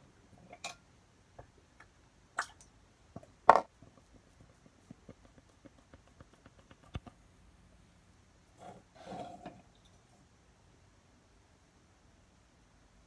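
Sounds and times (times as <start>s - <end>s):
paint drip ticks: 3.9s - 7.2s.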